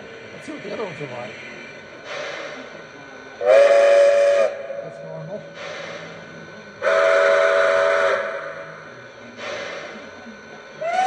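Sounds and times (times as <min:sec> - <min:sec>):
toy train steam whistle: 0:03.4 - 0:04.8, 0:06.8 - 0:08.8, 0:10.8 - 0:11.0.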